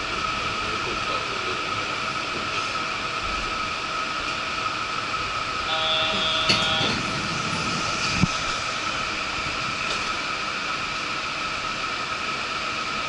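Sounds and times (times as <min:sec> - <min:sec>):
train running with whine: 0:00.0 - 0:13.0.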